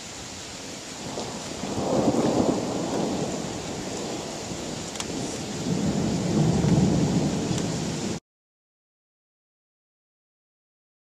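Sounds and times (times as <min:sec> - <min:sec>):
rain hissing: 0:00.0 - 0:08.2
thunder rumbling: 0:01.0 - 0:08.2.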